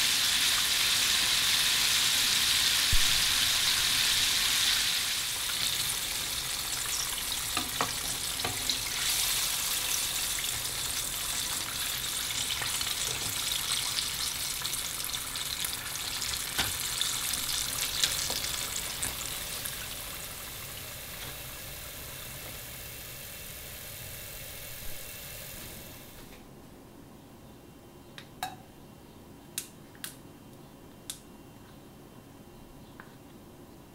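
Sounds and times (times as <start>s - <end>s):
chicken deep-frying in oil: 0.0s - 26.2s.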